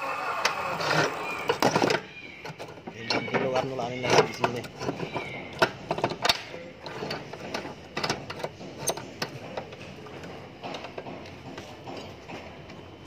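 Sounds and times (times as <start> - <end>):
metal vise clicking and knocking: 1.5 - 12.8.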